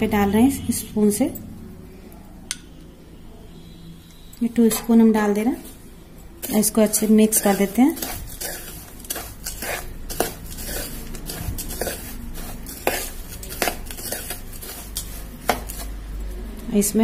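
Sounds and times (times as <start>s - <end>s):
spoon stirring and scraping crumbs: 4.5s - 17.0s.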